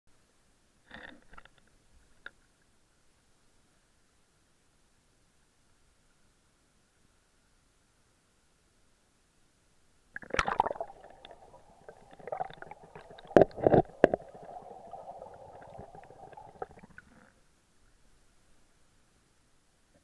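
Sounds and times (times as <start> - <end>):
muffled underwater gurgling: 10.2 - 17.2.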